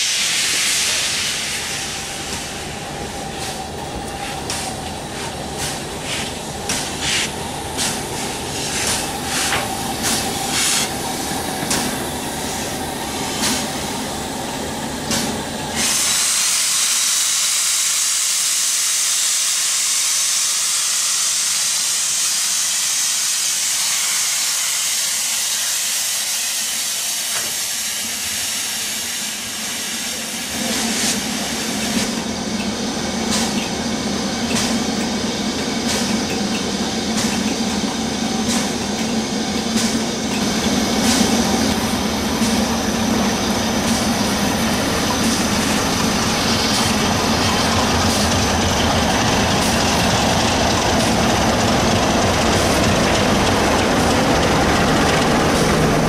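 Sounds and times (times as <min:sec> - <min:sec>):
steam hissing: 0:00.0 - 0:56.0
steam locomotive moving slowly: 0:00.0 - 0:56.0.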